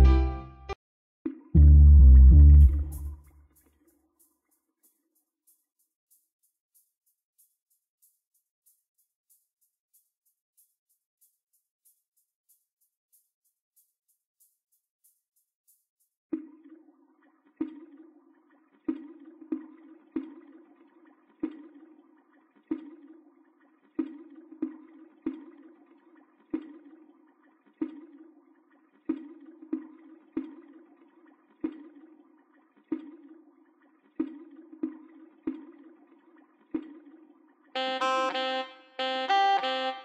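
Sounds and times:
synthesized reggae notes looping: 0:00.0 - 0:00.8, 0:01.6 - 0:03.2, 0:37.8 - 0:40.0.

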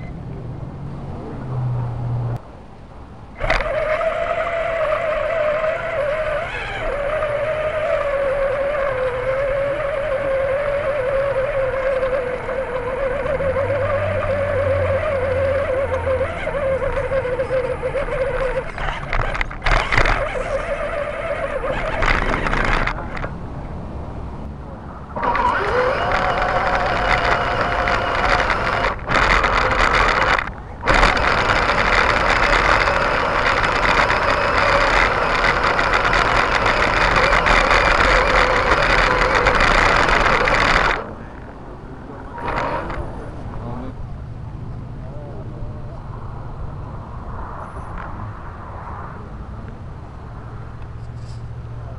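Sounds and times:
electric motor and gears whining: 0:03.1 - 0:23.4, 0:24.4 - 0:44.3.

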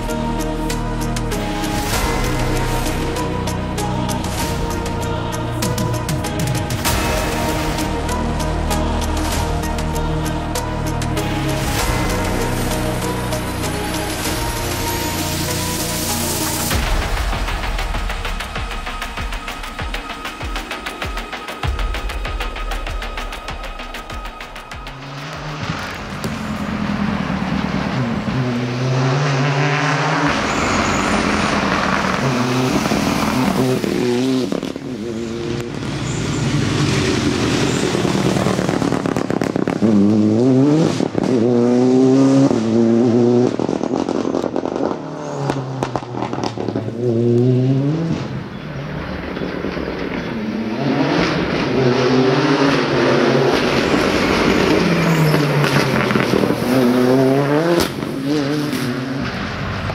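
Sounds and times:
rally car engine revving: 0:24.8 - 0:59.9.

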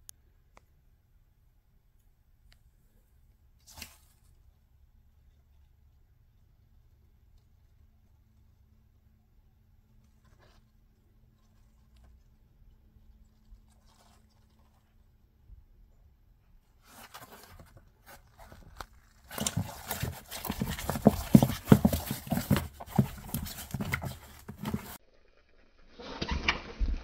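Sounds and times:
knocks and scrabbling against plastic: 0:16.8 - 0:25.0
scratching on plastic: 0:16.8 - 0:25.0.

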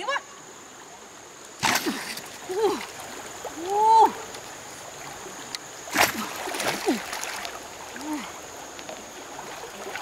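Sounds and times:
river water rushing: 0:00.4 - 0:10.0
fishing spear splashing into water: 0:01.6 - 0:02.4, 0:05.9 - 0:07.4.

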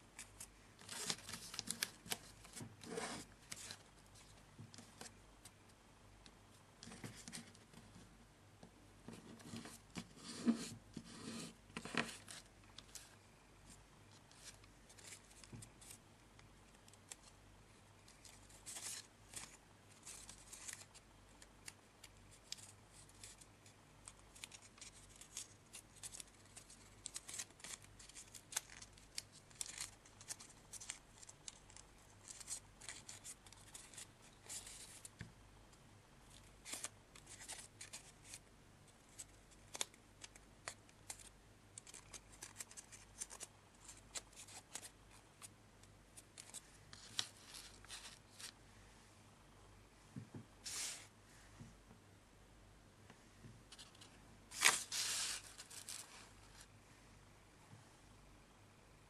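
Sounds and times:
paper crinkling: 0:00.2 - 0:05.2, 0:21.6 - 0:35.1, 0:39.1 - 0:45.2, 0:46.4 - 0:48.6, 0:53.7 - 0:56.7.

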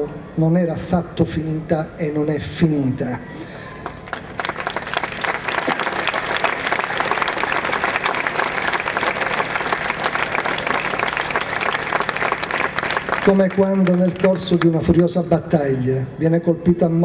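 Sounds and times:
crowd applauding: 0:03.5 - 0:14.9.

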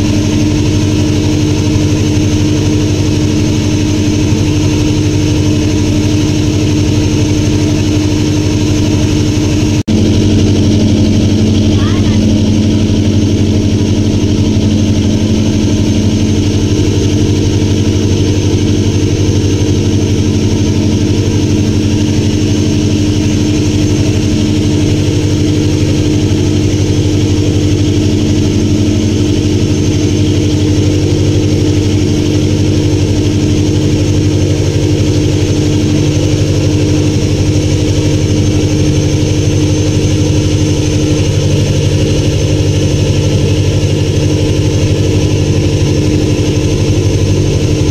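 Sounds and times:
motorboat engine drone: 0:00.0 - 0:47.9.

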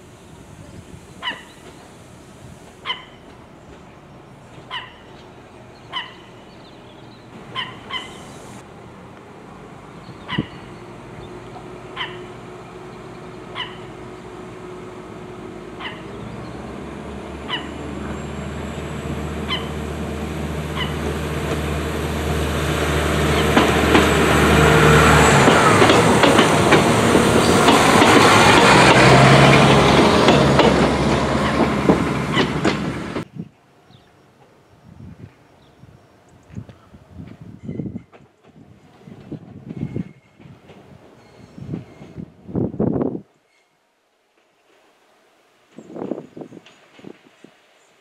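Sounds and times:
diesel railcar engine: 0:00.0 - 0:33.3, 0:37.0 - 0:45.0
train wheels clicking on track: 0:22.8 - 0:33.3.

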